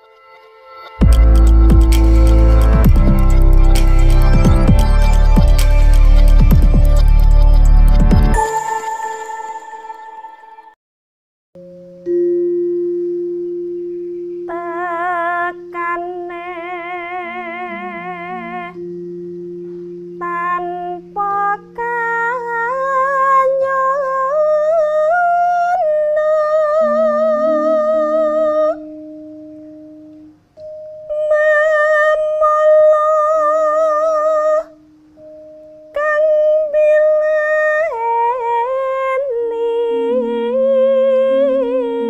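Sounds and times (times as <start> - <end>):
slow high melody with vibrato: 0.0 - 10.8, 11.6 - 42.0
sustained low held notes: 12.8 - 22.9, 26.6 - 30.4, 37.9 - 42.0.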